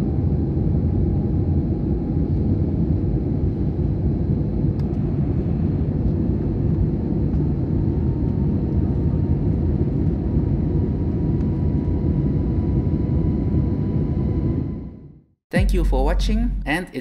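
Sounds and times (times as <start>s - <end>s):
jet engines rumbling: 0.1s - 14.9s.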